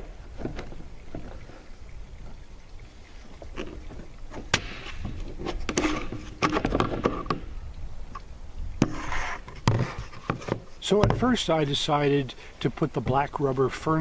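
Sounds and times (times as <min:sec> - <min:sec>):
pipe scraping: 0:03.1 - 0:07.4, 0:08.8 - 0:11.3.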